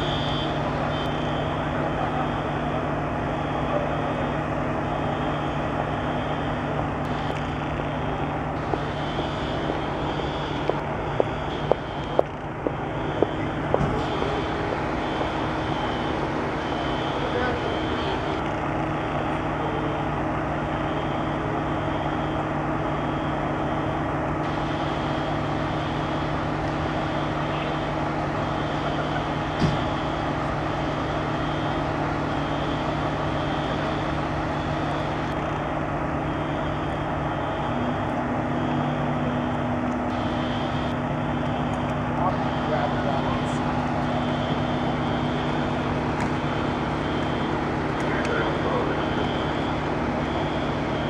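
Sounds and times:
faint high beep: 0.0 - 2.7, 3.4 - 12.2, 12.9 - 18.4, 46.4 - 51.0
diesel engines idling: 0.0 - 51.0.

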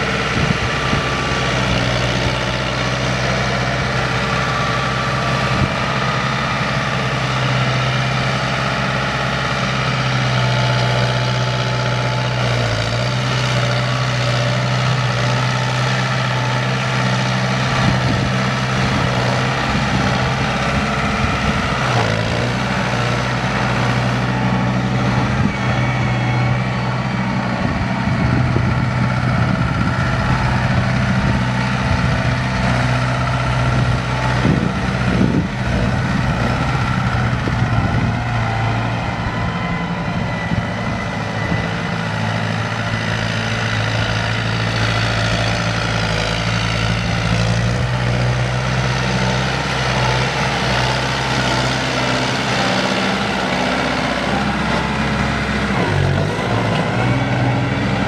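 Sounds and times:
tractor diesel engine idling: 0.0 - 58.0.

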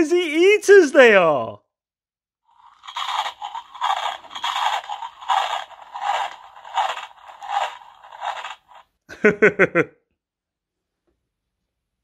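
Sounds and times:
toy speaker chomping sound effect: 2.7 - 8.8.

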